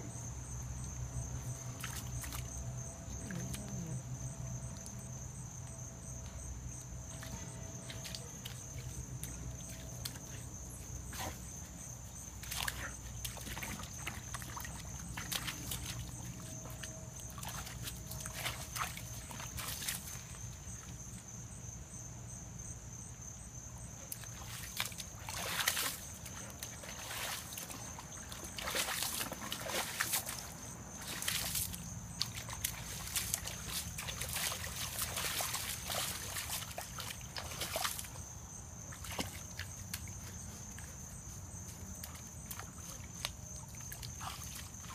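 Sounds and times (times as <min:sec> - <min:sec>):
dog splashing in mud puddle: 0:01.4 - 0:02.6, 0:07.2 - 0:21.0, 0:24.1 - 0:44.9.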